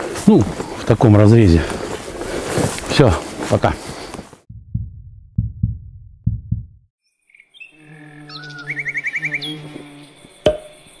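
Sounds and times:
low thumps: 4.5s - 6.9s
steady low hum: 4.5s - 6.9s.

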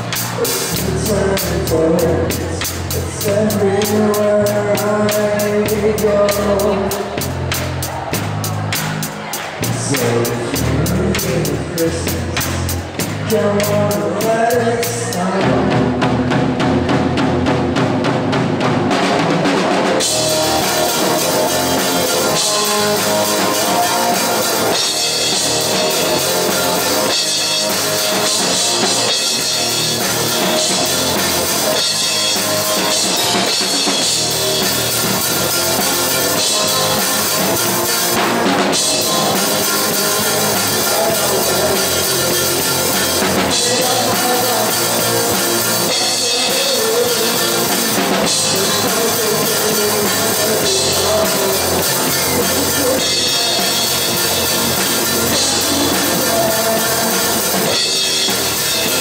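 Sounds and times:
drum kit: 0.0s - 59.0s
rock band playing: 0.0s - 59.0s.

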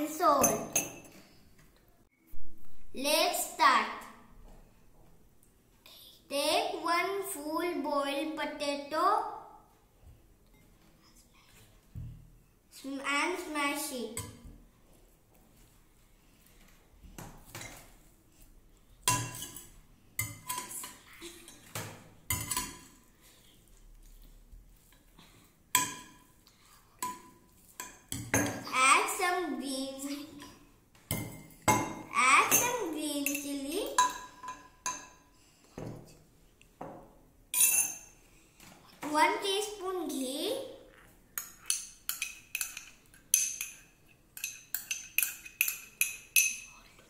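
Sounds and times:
metal spoon tapping glass bowls: 19.1s - 21.6s, 22.3s - 22.9s, 25.8s - 26.2s, 30.4s - 35.3s, 37.6s - 38.1s, 41.4s - 46.8s.

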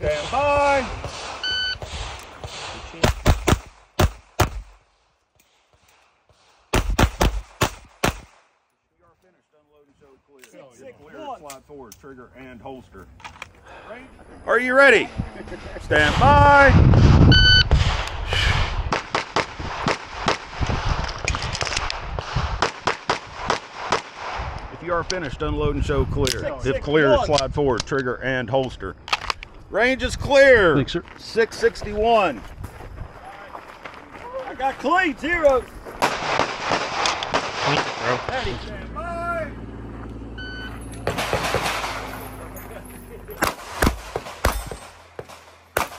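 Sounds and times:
pistol shots: 0.9s - 4.8s, 6.7s - 8.5s, 21.3s - 24.4s, 36.0s - 38.3s, 41.0s - 42.2s, 43.4s - 45.9s.

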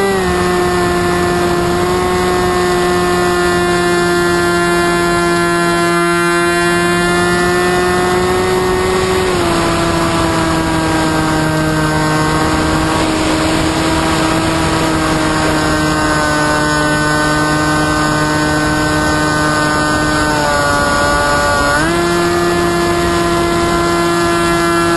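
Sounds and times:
electric motor propeller whine: 0.0s - 24.9s
wind rush: 7.0s - 24.9s.

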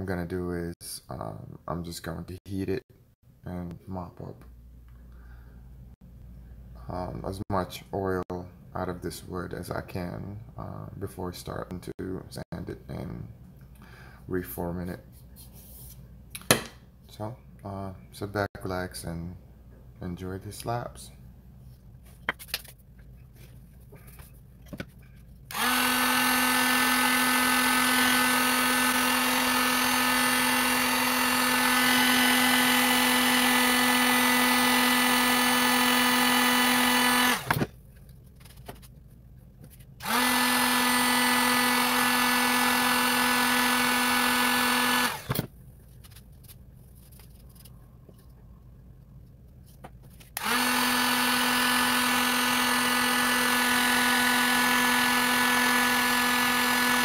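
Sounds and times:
heat gun humming with air rush: 25.5s - 37.6s, 40.0s - 45.5s, 50.4s - 57.0s.

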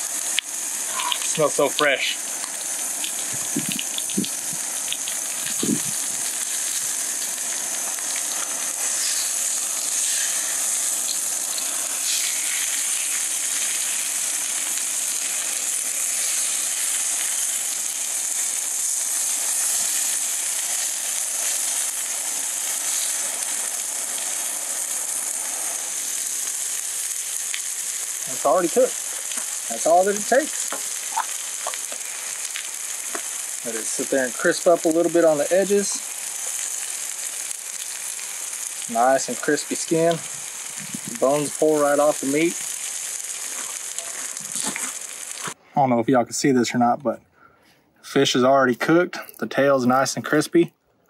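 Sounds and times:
fish sizzling in a pan: 0.0s - 45.6s
spatula scraping a pan: 8.8s - 10.8s.

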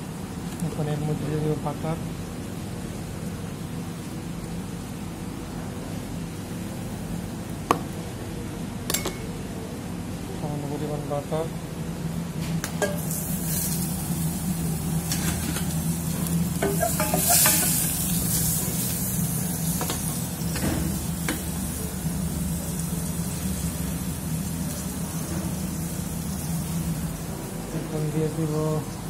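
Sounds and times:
steady low hum: 0.0s - 29.0s
butter sizzling in a pan: 13.0s - 27.3s.

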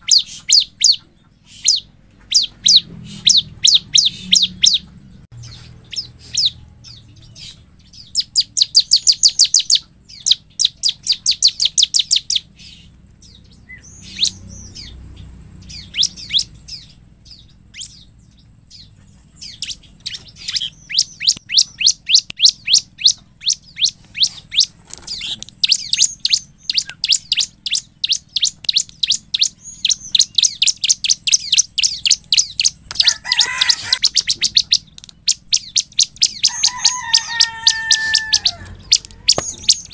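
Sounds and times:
bird chirping rapidly: 0.0s - 39.9s
rustle: 23.9s - 25.5s.

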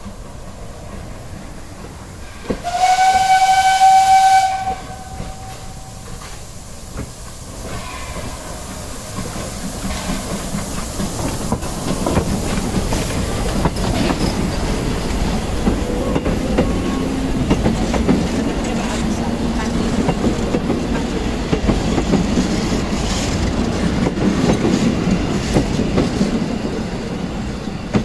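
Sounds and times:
steam hiss: 0.0s - 28.0s
steam locomotive rolling past: 0.0s - 28.0s
wheels clattering over rail joints: 9.2s - 28.0s.

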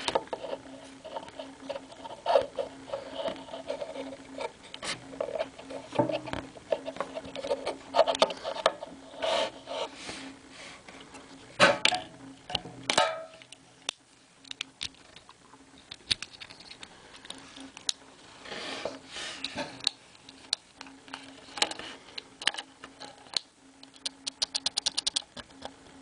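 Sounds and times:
plastic toys clicking and rubbing: 14.5s - 18.0s, 22.4s - 25.3s.

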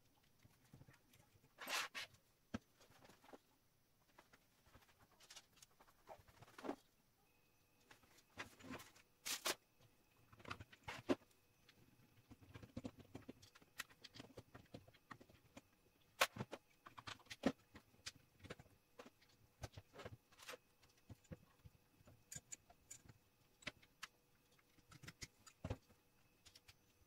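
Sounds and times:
metal parts clicking and tapping: 11.7s - 26.8s.

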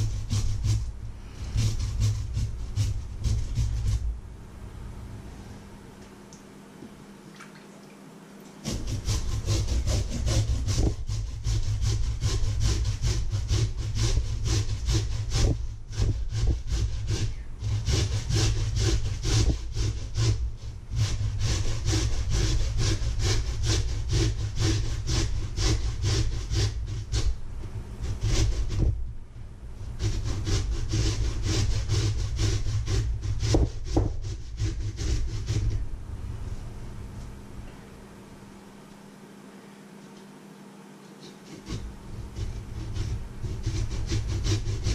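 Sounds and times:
potatoes grated on metal grater: 0.0s - 4.0s, 8.6s - 27.4s, 28.0s - 29.0s, 29.8s - 35.7s, 41.3s - 44.9s.

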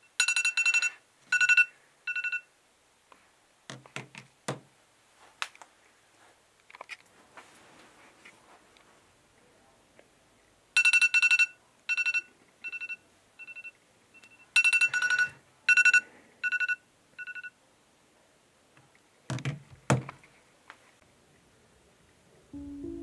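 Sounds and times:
phone alert beeps: 0.3s - 2.4s, 10.8s - 17.5s
dull knocks of phone handled: 3.7s - 4.7s, 19.3s - 20.2s.

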